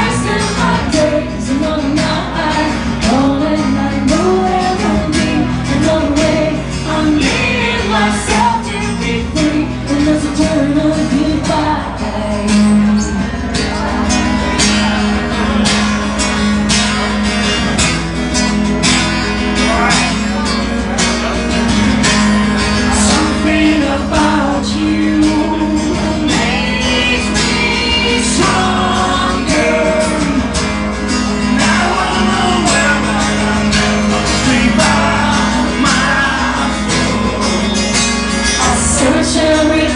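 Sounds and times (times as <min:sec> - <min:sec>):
man singing: 0:00.0 - 0:13.2, 0:22.8 - 0:39.9
woman singing: 0:00.0 - 0:13.3, 0:23.0 - 0:30.5, 0:38.6 - 0:39.9
acoustic guitars strummed: 0:00.0 - 0:39.9.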